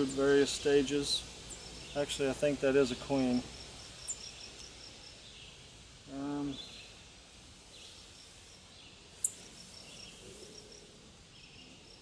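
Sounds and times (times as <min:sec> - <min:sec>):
bird chirps: 0:03.5 - 0:05.6, 0:07.7 - 0:12.0.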